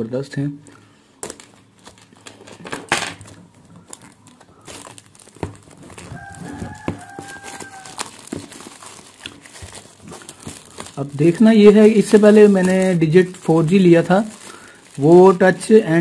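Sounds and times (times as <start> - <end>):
cardboard box rustling and knocking: 4.7 - 11.0
rooster crowing: 5.8 - 8.4.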